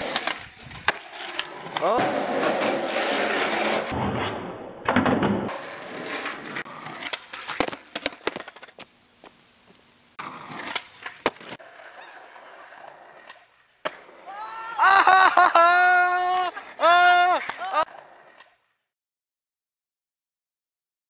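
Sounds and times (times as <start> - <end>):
skateboard wheels rolling: 0.0 - 18.9
skateboard clacking: 5.5 - 8.9, 10.4 - 14.3, 16.1 - 18.6.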